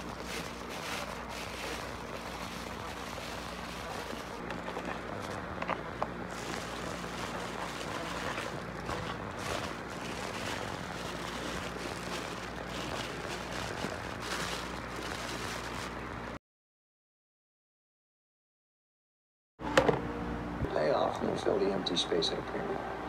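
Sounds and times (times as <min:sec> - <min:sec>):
low room hum: 0:00.0 - 0:16.4
plastic bags rustling: 0:00.0 - 0:16.4.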